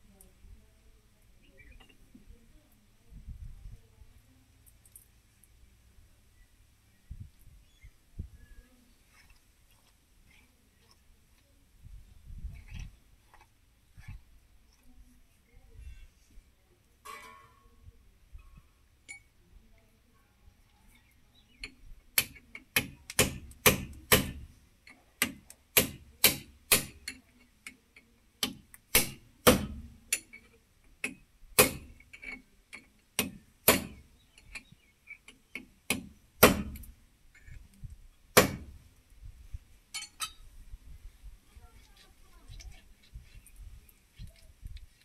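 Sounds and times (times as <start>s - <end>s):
hammer striking steel: 25.2s - 27.0s, 31.6s - 31.9s, 33.2s - 34.0s, 35.9s - 36.9s.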